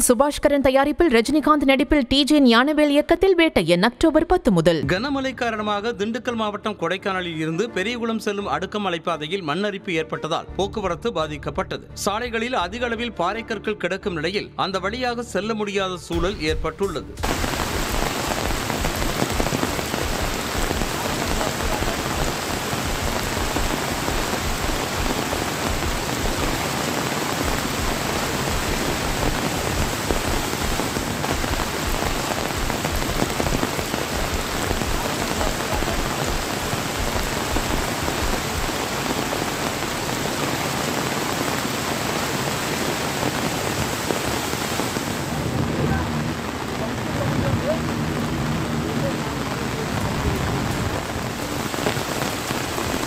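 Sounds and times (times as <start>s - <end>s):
heavy rain: 16.2s - 53.0s
runoff water rushing over rocks: 17.2s - 53.0s.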